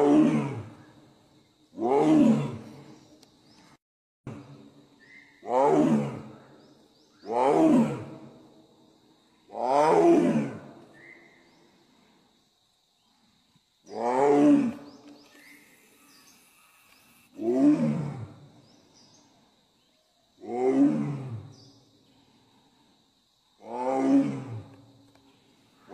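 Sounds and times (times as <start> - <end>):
tiger roaring: 0.0 - 0.7, 5.4 - 6.4, 7.3 - 8.3, 9.6 - 10.7, 17.3 - 18.4, 20.4 - 21.5, 23.6 - 24.7.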